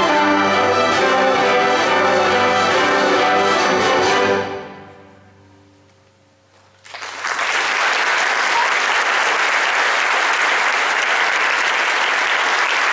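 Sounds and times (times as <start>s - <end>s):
audience applause: 6.8s - 12.9s.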